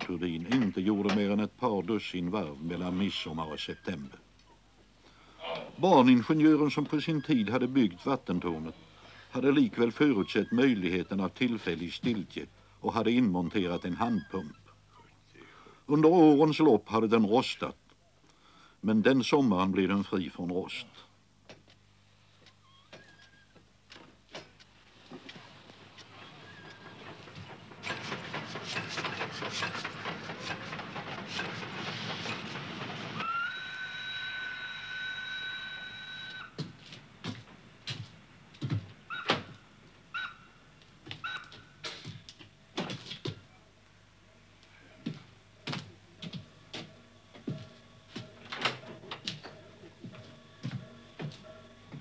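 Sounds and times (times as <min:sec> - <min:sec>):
steam locomotive clatter: 0:25.0 - 0:34.2
steam whistle blast: 0:33.2 - 0:36.5.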